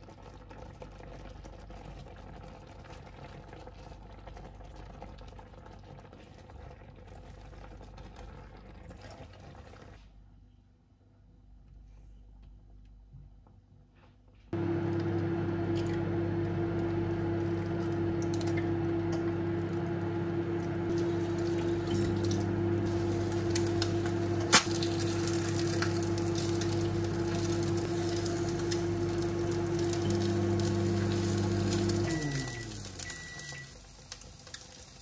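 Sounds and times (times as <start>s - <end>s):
induction hob humming: 14.5s - 34.2s
eggs sizzling in a pan: 16.2s - 35.0s.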